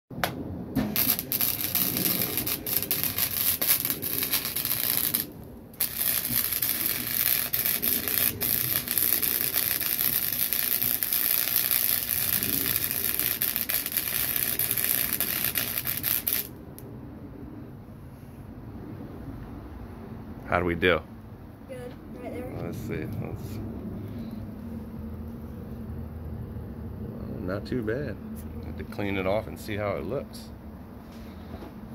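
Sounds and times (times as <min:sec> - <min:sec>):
welding arc popping: 0:00.2 - 0:16.6
arc welding crackle and hiss: 0:00.8 - 0:16.6.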